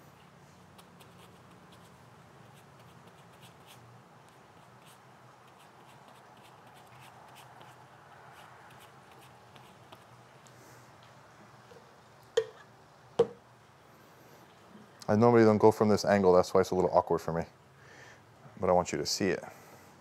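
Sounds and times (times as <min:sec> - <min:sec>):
brush spreading glue: 0:00.0 - 0:10.2.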